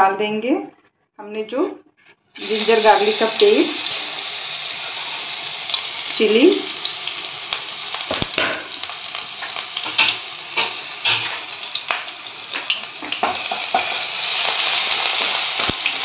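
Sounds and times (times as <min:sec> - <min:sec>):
paste sizzling in hot oil: 0:02.4 - 0:16.0
oil crackles and pops: 0:03.3 - 0:16.0.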